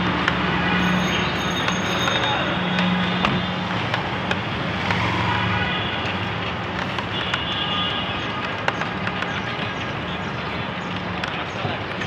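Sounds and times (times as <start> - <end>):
motorcycle engines passing: 0.0 - 7.4
busy street traffic: 0.0 - 12.0.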